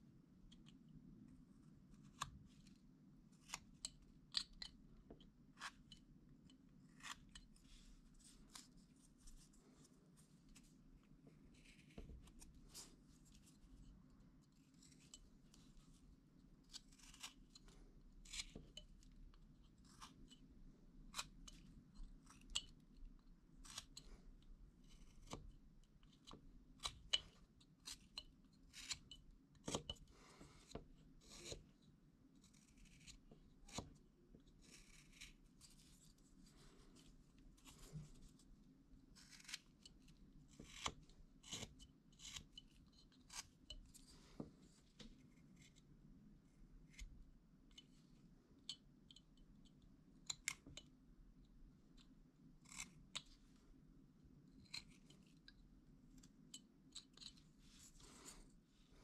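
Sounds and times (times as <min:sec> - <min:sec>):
knife slicing wood: 0:06.9 - 0:07.4, 0:39.2 - 0:39.6, 0:40.6 - 0:42.5.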